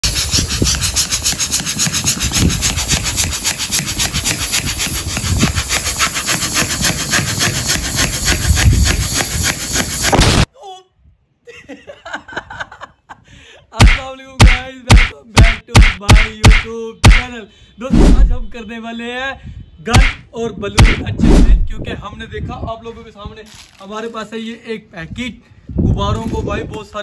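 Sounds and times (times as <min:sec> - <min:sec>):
balloon pump air strokes: 0:00.0 - 0:10.5, 0:20.0 - 0:20.2, 0:20.8 - 0:21.7.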